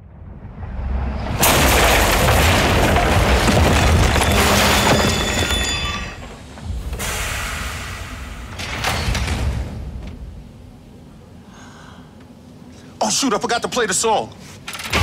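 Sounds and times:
heavy rumble: 0.0s - 11.4s
loud crash: 0.3s - 10.0s
crashing debris: 1.2s - 6.8s.

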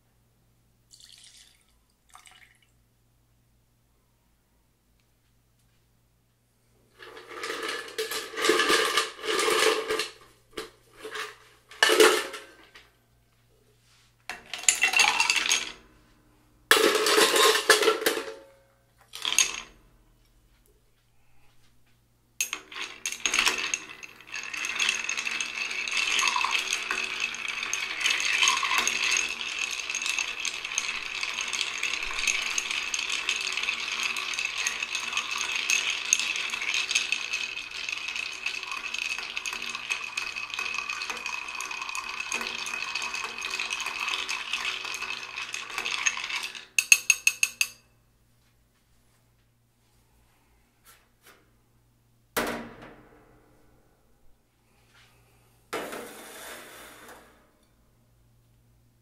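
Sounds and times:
ice cubes clattering into glass: 7.2s - 10.2s, 14.4s - 15.8s, 16.7s - 18.4s, 19.1s - 19.7s, 22.4s - 47.8s
spoon stirring ice: 14.4s - 15.8s, 19.2s - 19.6s, 22.4s - 47.8s.

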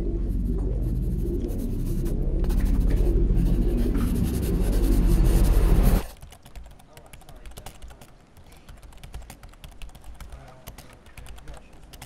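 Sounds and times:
pen scribbling on paper: 0.8s - 6.2s.

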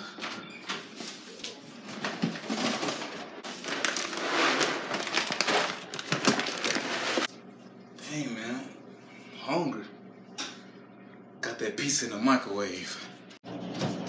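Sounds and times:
plastic bag crinkling: 2.5s - 7.3s.

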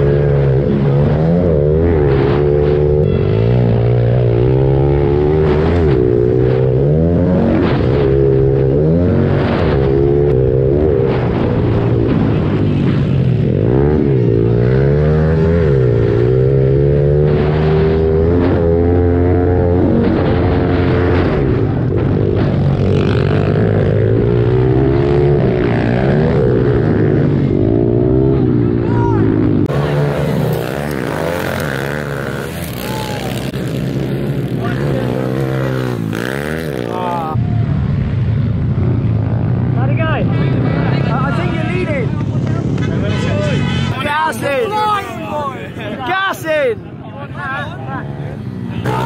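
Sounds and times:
motorbike engine revving: 0.0s - 37.6s, 48.0s - 49.0s.

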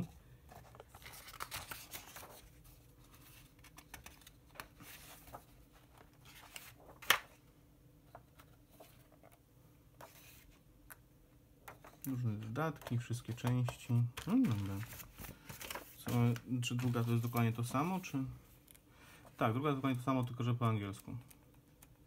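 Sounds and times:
paper pages rustling: 0.5s - 7.4s, 11.7s - 18.0s.

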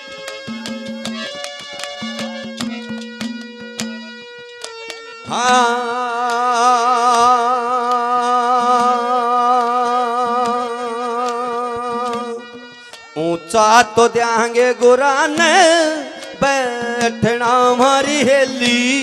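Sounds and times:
drum strokes: 0.3s - 4.3s.

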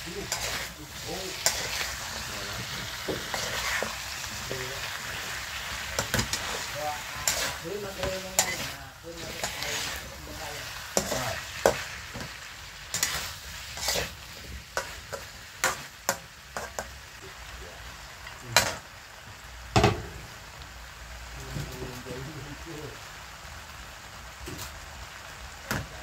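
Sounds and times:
metal spatula scraping wok: 0.0s - 16.8s
food sizzling: 0.0s - 26.0s.

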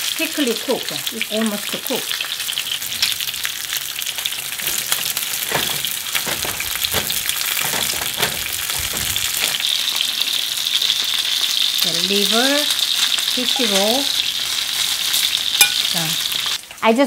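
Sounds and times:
fish sizzling in hot oil: 0.0s - 17.0s
spatula knocking and scraping pan: 4.2s - 9.8s, 15.6s - 16.0s.

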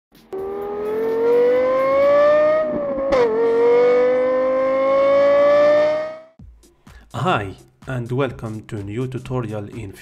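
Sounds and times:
car engine revving hard: 0.4s - 6.4s.

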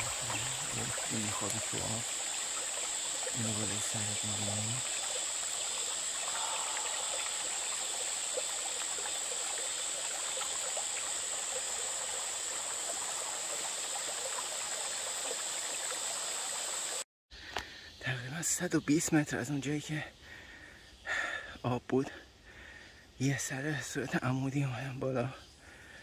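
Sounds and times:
creek rushing: 0.0s - 17.0s
high-pitched insect drone: 0.0s - 20.2s.

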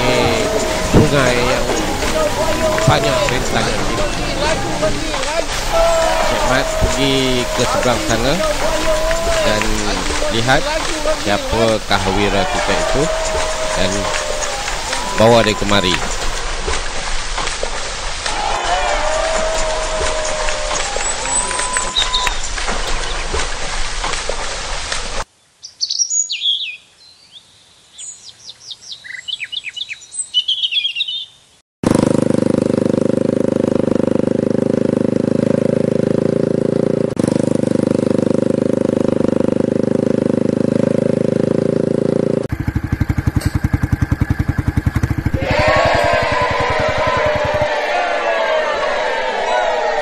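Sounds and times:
birds chirping: 0.0s - 16.7s, 18.4s - 23.6s, 25.4s - 31.6s
motorcycle engine running: 0.0s - 23.5s, 31.8s - 48.1s
water splashing: 0.0s - 25.3s.

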